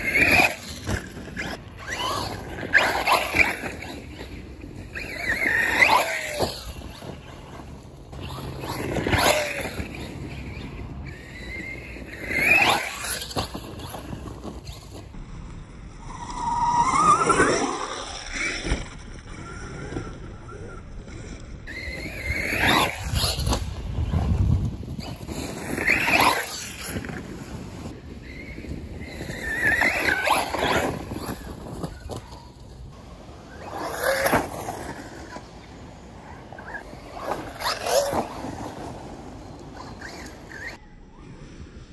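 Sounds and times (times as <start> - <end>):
toy truck electric motor whining: 21.7 - 23.6.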